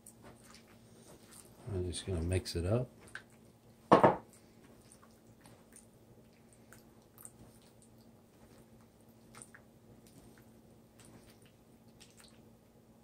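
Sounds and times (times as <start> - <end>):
hand squishing food mixture: 0.0 - 13.0.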